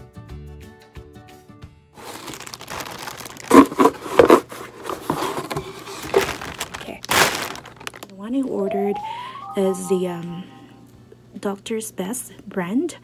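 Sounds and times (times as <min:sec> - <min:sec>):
cardboard box pulled open: 0:02.0 - 0:06.6
plastic packaging crinkling: 0:02.0 - 0:08.3
background music melody: 0:08.2 - 0:10.8.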